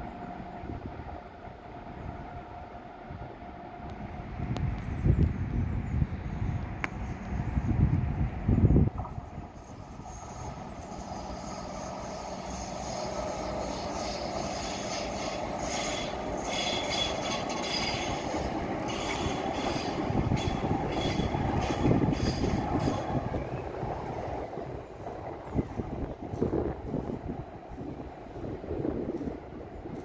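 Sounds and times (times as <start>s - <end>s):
tram passing on tracks: 0.0s - 30.0s
wind buffeting microphone: 0.0s - 30.0s
high-pitched squeal: 9.5s - 23.2s.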